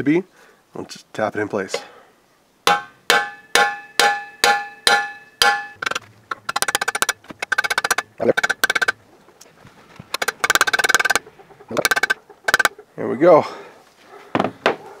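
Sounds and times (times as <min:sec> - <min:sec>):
hammer blows on metal: 0:02.7 - 0:05.8.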